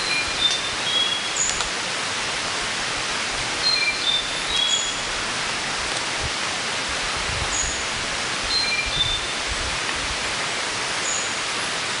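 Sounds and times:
whistled bird notes: 0.0s - 1.6s, 3.6s - 5.1s, 8.5s - 9.4s, 11.0s - 11.4s
forest rushing ambience: 0.0s - 12.0s.

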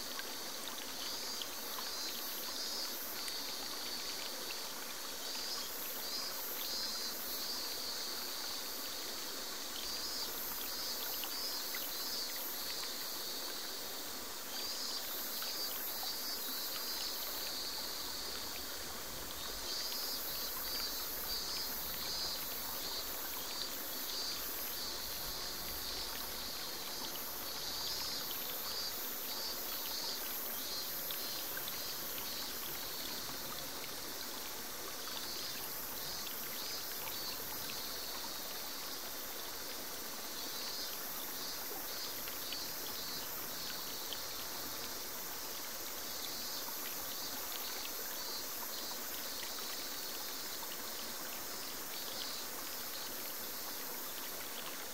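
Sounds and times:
cicadas trilling: 0.0s - 54.9s
small waterfall spilling into pool: 0.0s - 54.9s.

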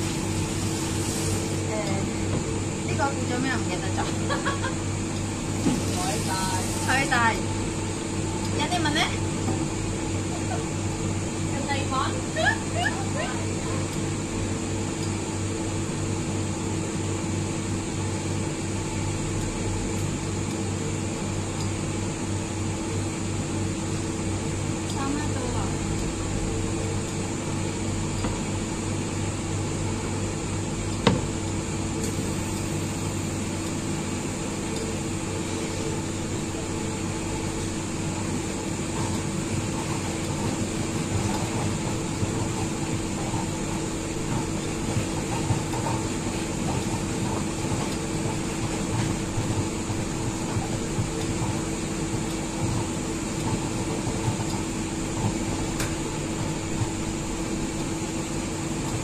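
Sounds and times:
fan motor humming: 0.0s - 59.0s.

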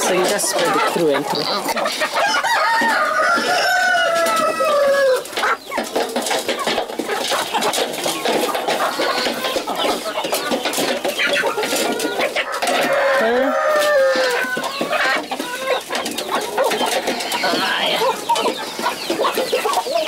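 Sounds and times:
chickens clucking and squawking: 0.0s - 20.0s
rooster crowing: 2.2s - 5.3s, 12.4s - 14.6s.

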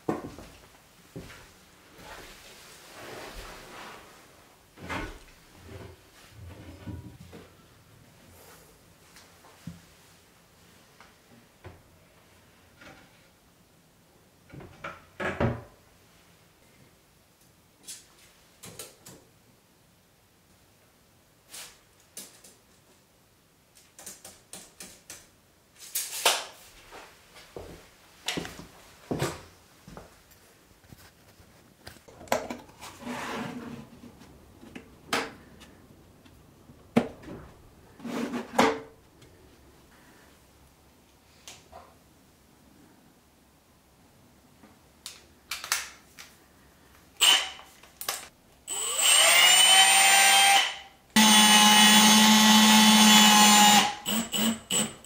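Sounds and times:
cabinet door opening and shutting: 14.5s - 15.8s.

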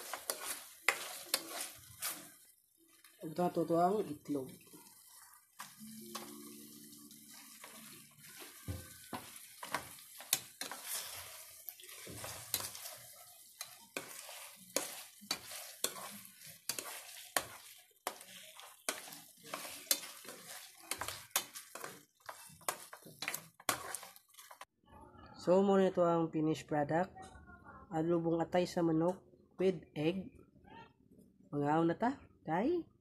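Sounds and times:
ladle scraping a frying pan: 0.0s - 2.4s, 7.3s - 24.7s
light sizzle: 0.0s - 24.7s.

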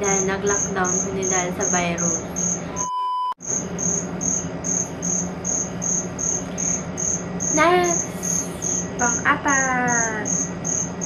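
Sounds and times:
crickets chirping: 0.0s - 11.0s
low steady hum: 0.0s - 11.0s.

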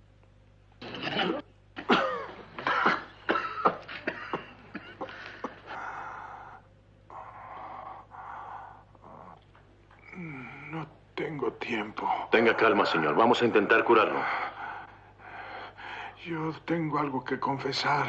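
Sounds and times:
man coughing and sputtering: 0.8s - 5.8s.

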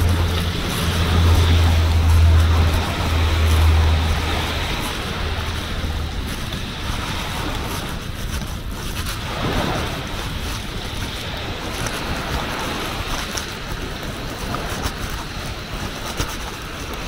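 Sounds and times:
low rumble: 0.0s - 13.1s
waves washing on beach: 0.0s - 17.0s
wind buffeting microphone: 0.0s - 17.0s.

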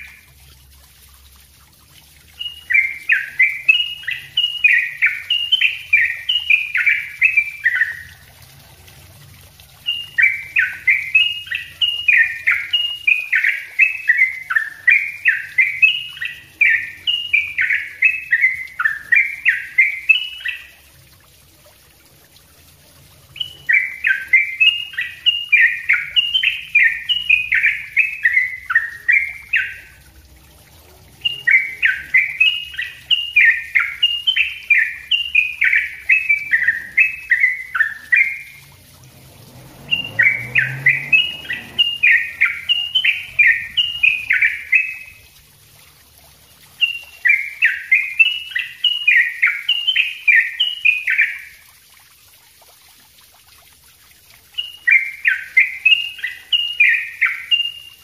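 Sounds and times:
bird singing fast short notes: 39.9s - 45.3s.

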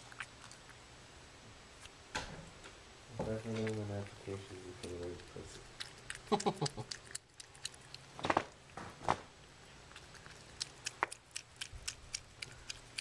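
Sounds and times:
cat eating wet food: 0.0s - 0.8s, 3.3s - 8.8s, 9.4s - 13.0s.

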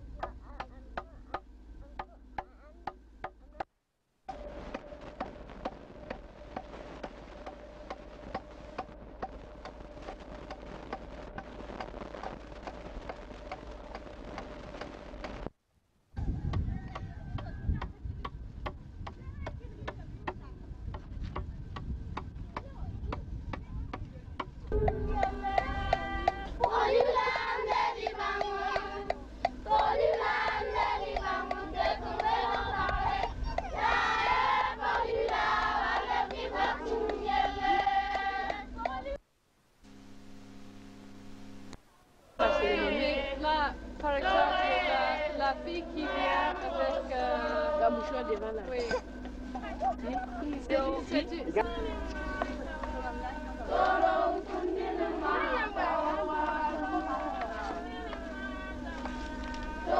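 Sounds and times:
constant hum: 0.0s - 59.9s
sharp clicking beat: 4.3s - 15.5s, 24.4s - 39.2s
group of voices singing: 24.7s - 39.1s, 42.4s - 59.9s.

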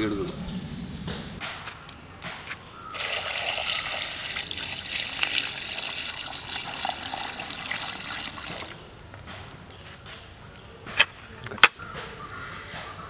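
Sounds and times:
water pouring and splashing in bowl: 2.9s - 8.9s.

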